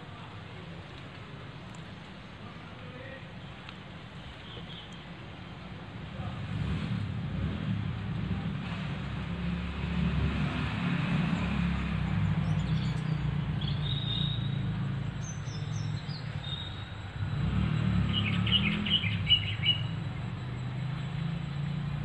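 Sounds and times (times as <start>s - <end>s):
small birds chirping: 4.1s - 5.8s, 11.2s - 22.0s.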